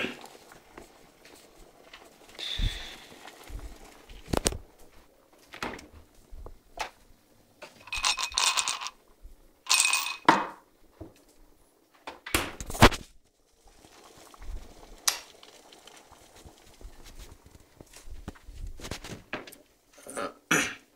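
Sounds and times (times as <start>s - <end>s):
mugs knocking and clinking: 7.6s - 9.0s, 9.7s - 10.6s
mugs scraping and clattering: 7.6s - 9.0s.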